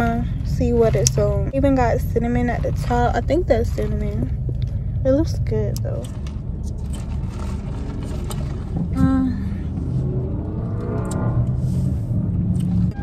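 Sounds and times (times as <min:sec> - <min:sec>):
car engine low rumble: 0:00.0 - 0:13.0.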